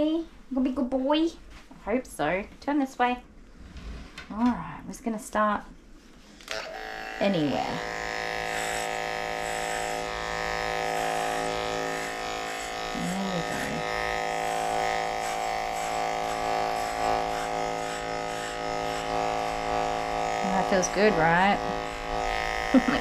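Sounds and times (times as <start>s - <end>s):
electric clippers humming: 6.4s - 23.0s.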